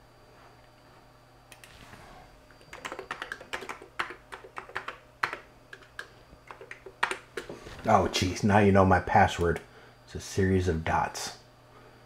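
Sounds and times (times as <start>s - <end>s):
computer keyboard typing: 2.6s - 7.5s.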